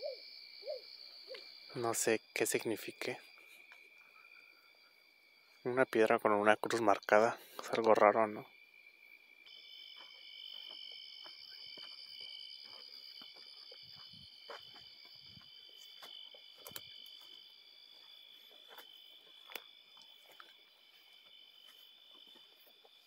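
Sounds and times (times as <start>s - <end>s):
night insects trilling: 0.0s - 23.0s
footsteps on dirt path: 3.4s - 3.9s, 9.4s - 23.0s.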